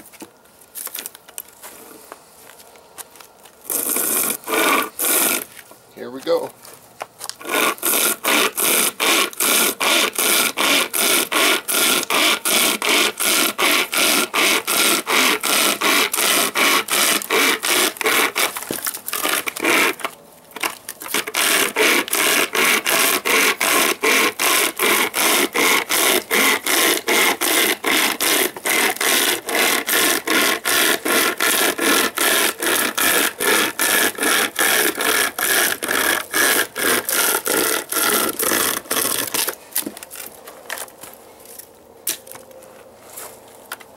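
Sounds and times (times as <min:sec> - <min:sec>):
saw chain rasping through log: 0:03.7 - 0:06.5, 0:07.4 - 0:40.9.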